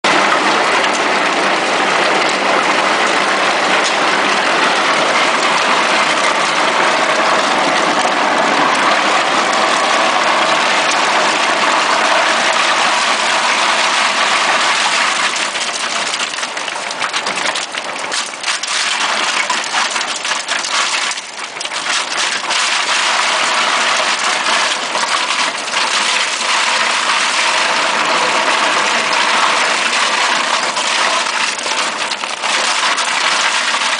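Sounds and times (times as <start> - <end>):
grinder shredding meat: 0.0 - 33.9.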